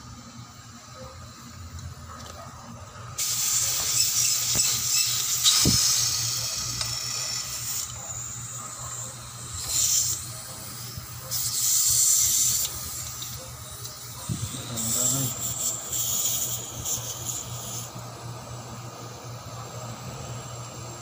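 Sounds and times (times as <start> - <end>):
gas hissing from a fitting: 3.2 - 18.4.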